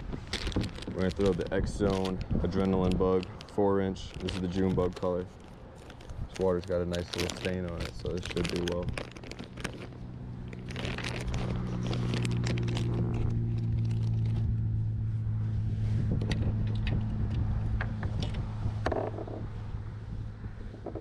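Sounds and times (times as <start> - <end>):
plastic bag crinkling: 0.0 - 14.4
engine drone: 0.0 - 21.0.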